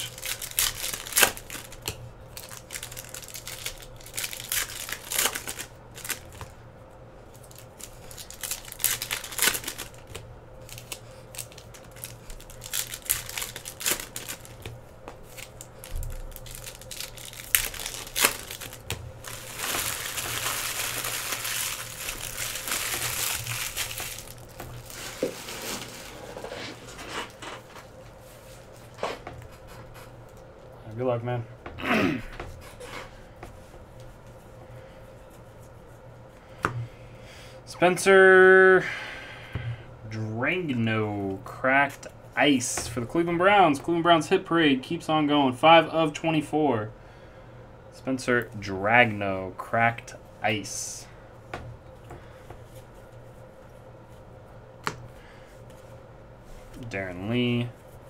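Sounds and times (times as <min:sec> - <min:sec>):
foil wrappers crinkling and tearing: 0:00.0 - 0:06.5, 0:07.3 - 0:27.7.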